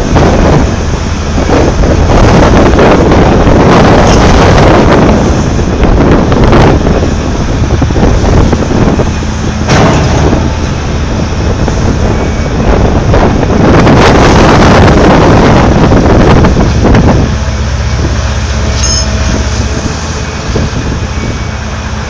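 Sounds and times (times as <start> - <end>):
excavator engine rumbling: 0.0 - 22.0
wind buffeting microphone: 0.0 - 22.0.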